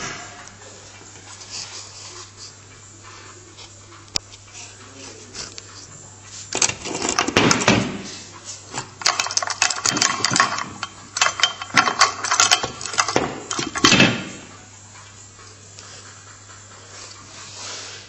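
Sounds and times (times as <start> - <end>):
bearing clicking and rattling: 8.8 - 14.5.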